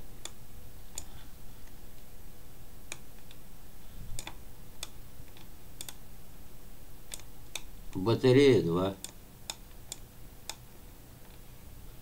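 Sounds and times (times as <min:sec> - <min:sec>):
faint steady hum: 0:00.0 - 0:12.0
sharp clicks: 0:02.9 - 0:03.4, 0:04.2 - 0:06.0, 0:07.1 - 0:08.0, 0:09.0 - 0:10.6.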